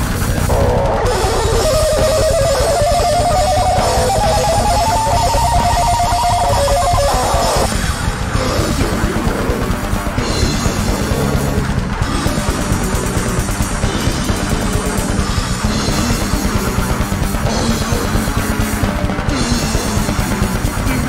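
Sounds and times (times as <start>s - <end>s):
bass and drums: 0.0s - 21.0s
distorted electric guitar solo: 0.0s - 21.0s.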